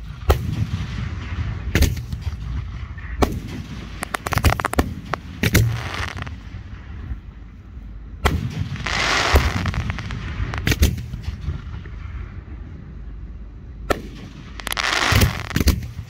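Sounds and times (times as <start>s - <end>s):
firework bangs: 0.0s - 7.1s, 8.2s - 12.3s, 13.9s - 16.0s
firework hissing: 4.0s - 6.4s, 8.8s - 10.8s, 14.6s - 15.7s.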